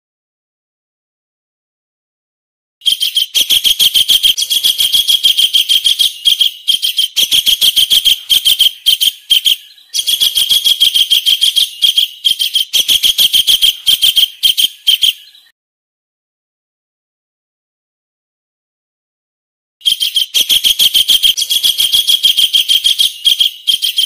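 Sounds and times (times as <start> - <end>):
kingfisher calls: 3.0 - 15.4, 19.8 - 24.0.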